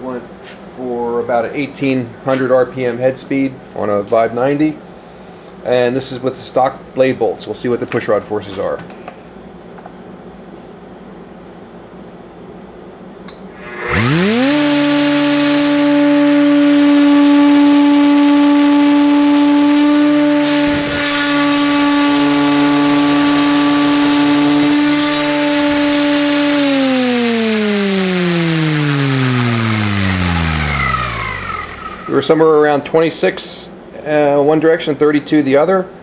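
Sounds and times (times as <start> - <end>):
router whining: 13.3 - 32.5.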